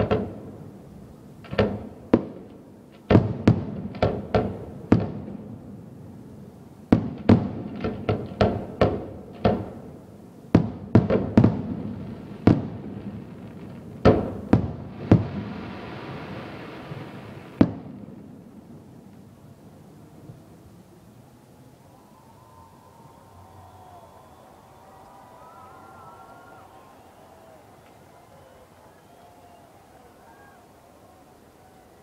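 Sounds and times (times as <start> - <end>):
firework hiss: 10.0 - 18.4.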